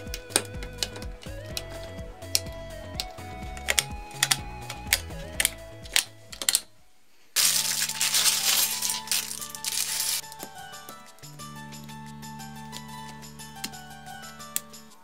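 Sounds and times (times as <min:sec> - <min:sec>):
background music: 0:00.0 - 0:15.0
plastic pieces clattering onto table: 0:07.4 - 0:10.2
plastic bricks clicking together: 0:07.4 - 0:10.5
plastic bag crinkling: 0:07.4 - 0:11.2.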